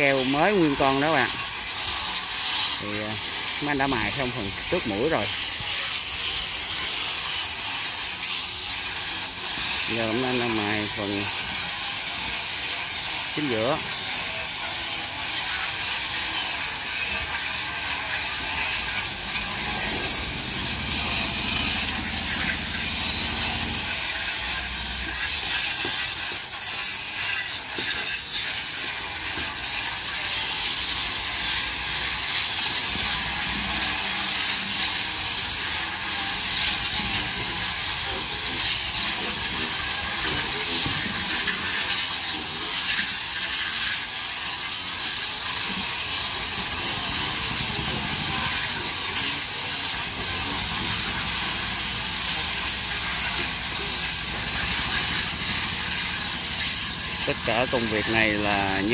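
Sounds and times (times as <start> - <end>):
power grinders sanding wood: 0.0 - 58.9.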